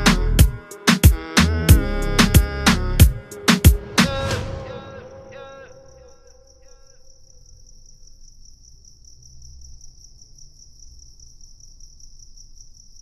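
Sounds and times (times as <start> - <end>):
song music: 0.0 - 5.9
cricket chirping: 3.2 - 13.0.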